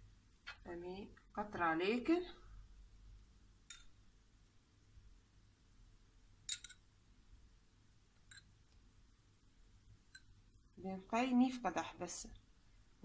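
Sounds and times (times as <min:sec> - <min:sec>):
glass and spoon clicks: 0:03.7 - 0:04.0, 0:06.5 - 0:06.8, 0:08.3 - 0:08.5.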